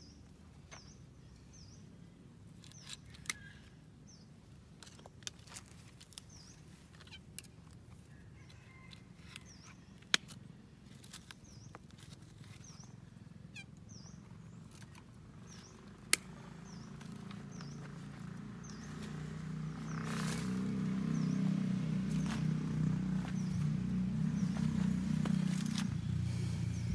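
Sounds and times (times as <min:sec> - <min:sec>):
bird chirping: 0:00.0 - 0:02.0, 0:02.6 - 0:10.1, 0:11.1 - 0:26.9
pruning shears snapping shut: 0:15.9 - 0:16.4
low drone: 0:15.9 - 0:26.9.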